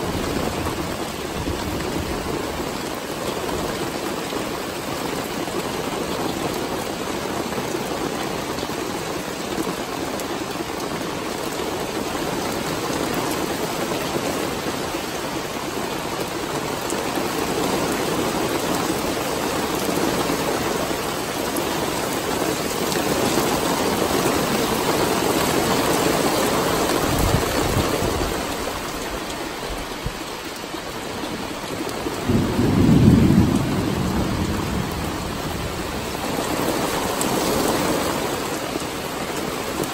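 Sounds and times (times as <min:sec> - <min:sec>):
thunder rumbling: 0:00.0 - 0:03.0, 0:31.3 - 0:38.3
heavy rain falling: 0:00.0 - 0:39.9.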